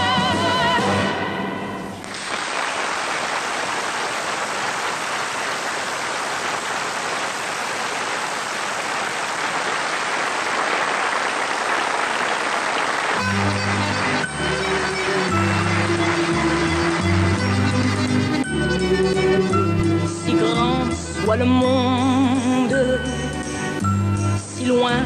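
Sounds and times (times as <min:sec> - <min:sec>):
audience applauding: 0:02.0 - 0:18.7.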